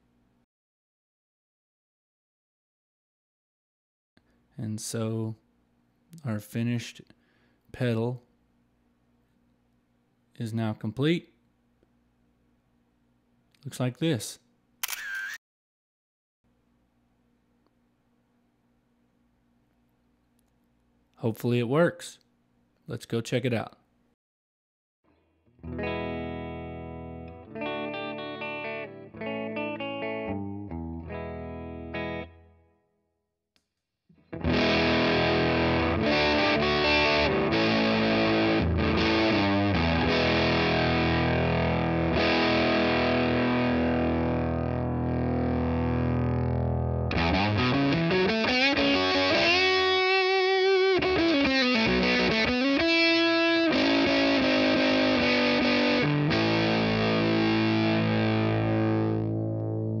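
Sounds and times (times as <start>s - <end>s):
electric guitar: 25.6s - 32.6s, 34.2s - 60.0s
heavily fuzzed electric guitar: 34.4s - 60.0s.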